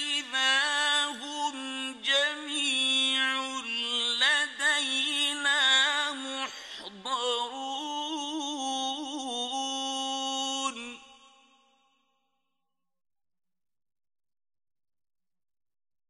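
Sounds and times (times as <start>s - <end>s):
man chanting: 0.0s - 11.4s.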